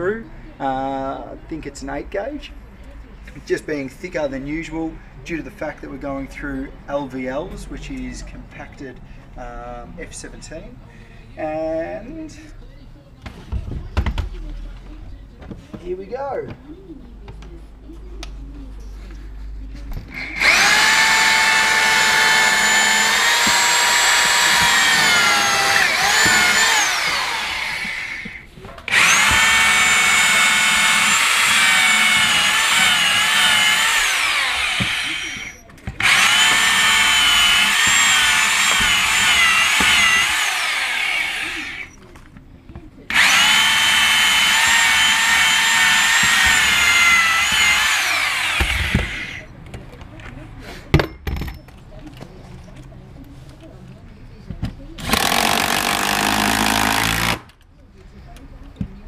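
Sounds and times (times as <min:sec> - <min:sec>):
electric drill whining: 0:20.1 - 0:42.0, 0:43.1 - 0:49.5, 0:55.0 - 0:57.4.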